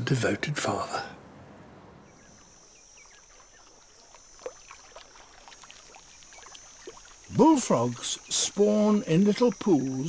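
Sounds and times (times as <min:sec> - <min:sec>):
water drips: 0:02.0 - 0:10.0.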